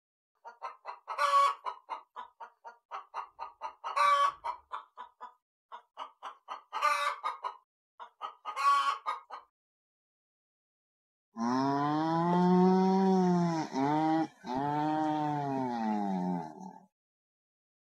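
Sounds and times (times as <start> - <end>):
hen clucking: 0.4 - 9.5.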